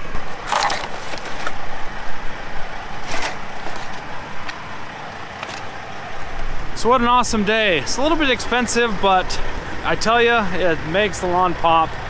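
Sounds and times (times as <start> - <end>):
plastic pots rustling and crinkling: 0.0 - 1.8, 3.0 - 5.8
traffic hum: 0.0 - 12.0.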